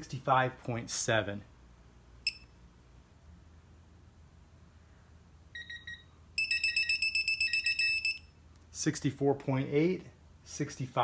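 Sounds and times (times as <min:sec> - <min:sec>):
torque wrench beeping: 0:05.6 - 0:08.3.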